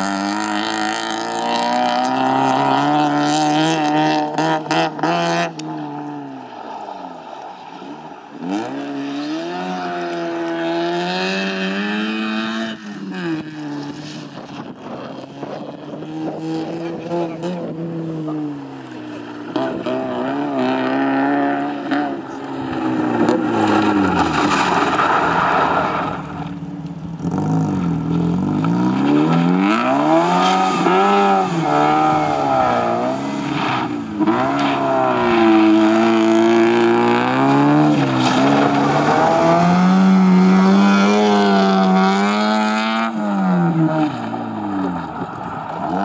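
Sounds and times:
rally car engine revving: 0:00.0 - 0:06.7, 0:07.3 - 0:46.0.

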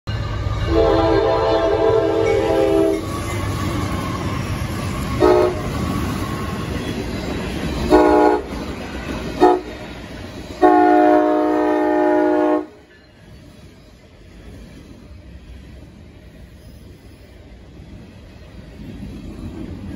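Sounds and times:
diesel locomotives rumbling past: 0:00.1 - 0:19.9
train horn blasts: 0:00.6 - 0:03.1, 0:05.2 - 0:05.8, 0:07.9 - 0:08.6, 0:09.4 - 0:09.8, 0:10.6 - 0:12.9.

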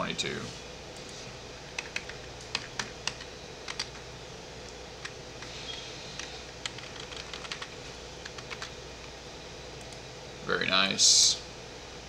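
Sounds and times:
low room hum: 0:00.0 - 0:12.0
keyboard keys clicking: 0:01.8 - 0:04.0, 0:06.2 - 0:08.7.

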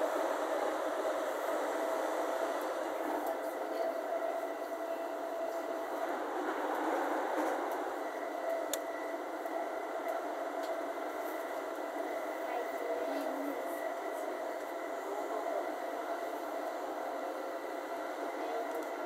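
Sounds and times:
train running noise: 0:00.0 - 0:19.0.

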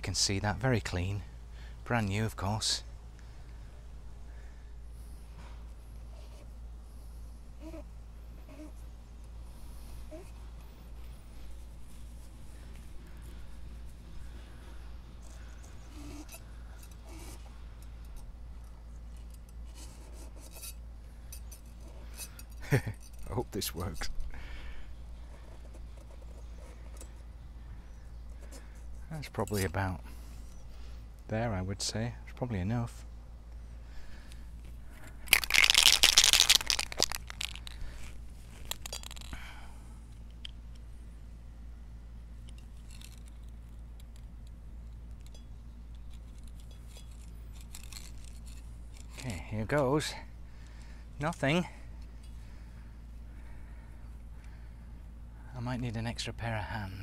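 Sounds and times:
low steady rumble: 0:00.0 - 0:57.0
aerosol can rattling and scraping: 0:35.2 - 0:39.3.

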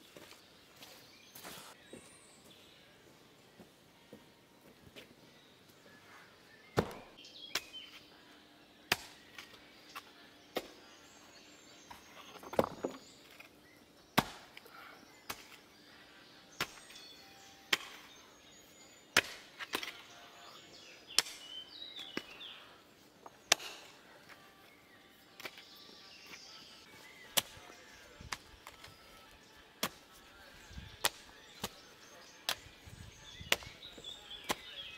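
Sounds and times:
digging tool striking soil and wood: 0:06.8 - 0:07.9, 0:08.9 - 0:10.8, 0:14.1 - 0:14.6, 0:15.2 - 0:15.6, 0:16.6 - 0:17.1, 0:17.7 - 0:18.2, 0:19.1 - 0:20.2, 0:21.1 - 0:22.4, 0:23.2 - 0:24.0, 0:25.4 - 0:25.7, 0:27.2 - 0:29.0, 0:29.7 - 0:30.1, 0:31.0 - 0:32.7, 0:33.4 - 0:34.9.

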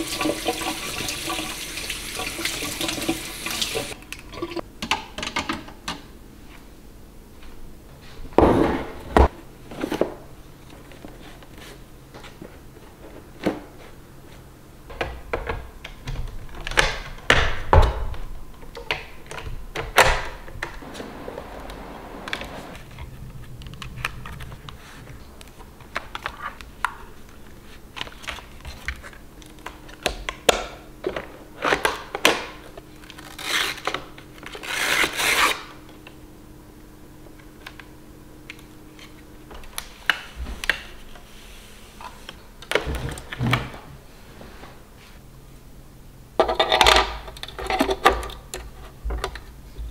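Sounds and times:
faint steady hum: 0:00.0 - 0:49.9.

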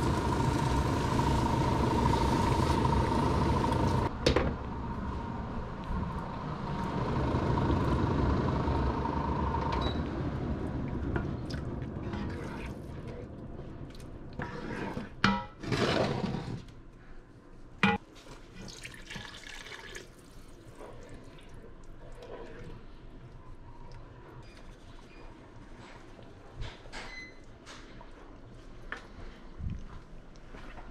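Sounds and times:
steady hum: 0:00.0 - 0:14.3
wooden spoon scraping: 0:14.4 - 0:16.7.

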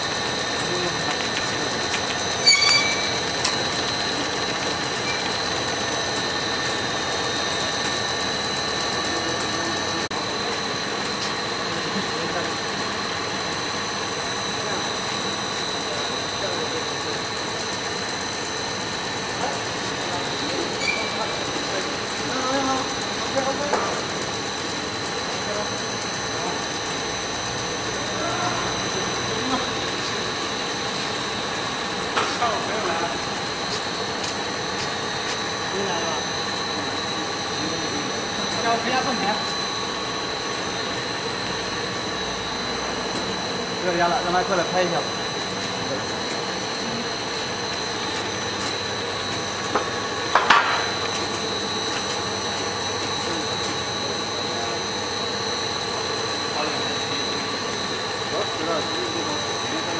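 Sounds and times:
machine humming and hissing: 0:00.0 - 0:59.9
brief squeak: 0:02.4 - 0:03.2, 0:20.8 - 0:21.2
high-pitched whine: 0:53.2 - 0:59.9.

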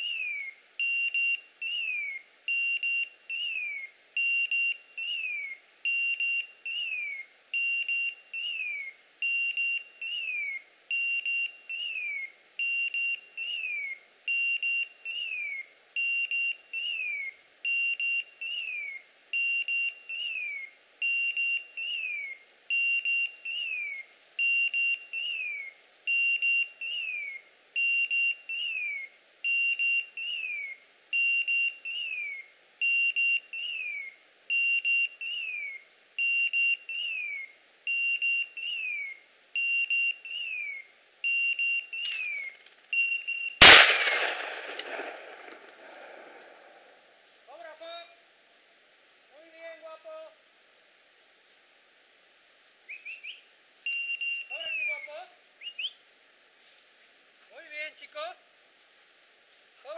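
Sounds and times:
beeper collar beep and chirp: 0:00.8 - 0:01.9, 0:02.5 - 0:03.6, 0:04.2 - 0:07.0, 0:07.6 - 0:12.0, 0:12.6 - 0:13.7, 0:14.3 - 0:17.1, 0:17.7 - 0:18.7, 0:19.4 - 0:20.4, 0:21.0 - 0:22.1, 0:22.7 - 0:23.8, 0:24.4 - 0:25.5, 0:26.1 - 0:33.9, 0:34.5 - 0:37.2, 0:37.9 - 0:38.8, 0:39.6 - 0:43.6.

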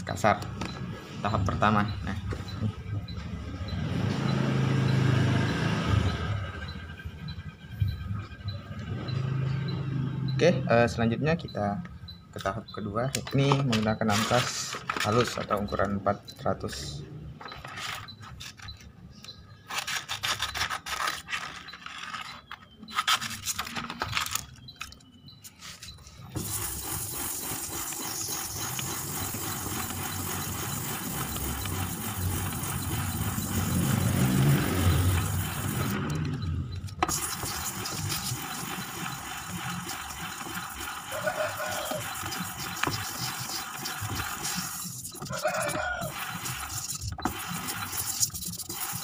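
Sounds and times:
sandpaper rubbing on metal: 0:22.9 - 0:23.7, 0:25.5 - 0:36.0, 0:37.1 - 0:49.0.

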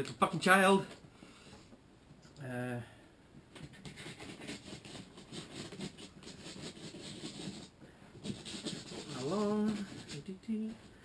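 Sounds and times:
cardboard box crackling and scratching: 0:03.7 - 0:10.7.

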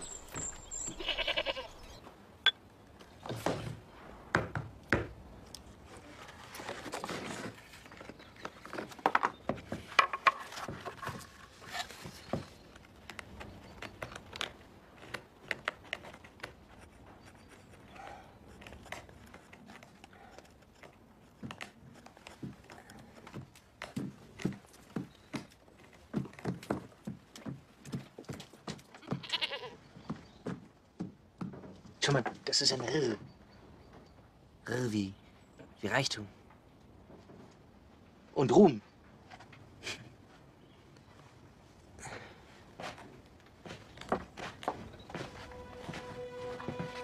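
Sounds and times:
farm animal bleating: 0:00.8 - 0:02.0, 0:29.0 - 0:29.8.

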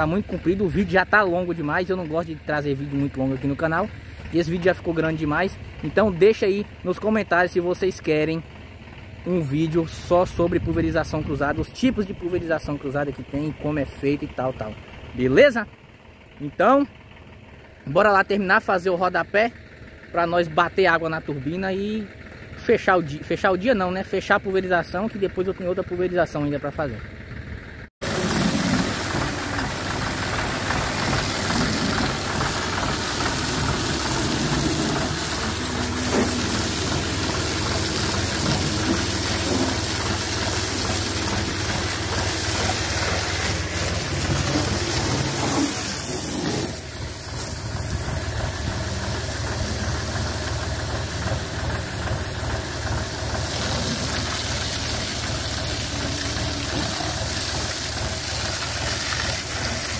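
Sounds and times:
tractor diesel engine running: 0:00.0 - 0:59.9
sprayer fan hiss: 0:28.0 - 0:59.9.

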